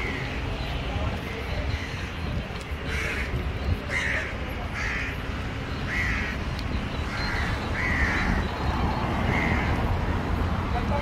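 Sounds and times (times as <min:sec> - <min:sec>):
crow cawing: 0:02.9 - 0:03.3, 0:03.9 - 0:05.2, 0:05.9 - 0:06.4, 0:07.1 - 0:08.5, 0:09.2 - 0:09.8.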